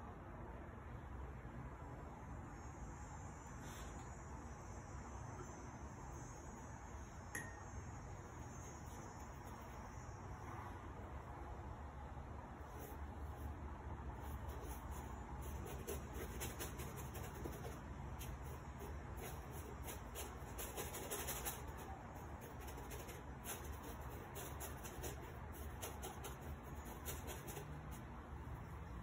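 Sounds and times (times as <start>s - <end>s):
low steady hum: 0.0s - 29.0s
paintbrush strokes on canvas: 8.1s - 11.6s, 12.5s - 28.9s.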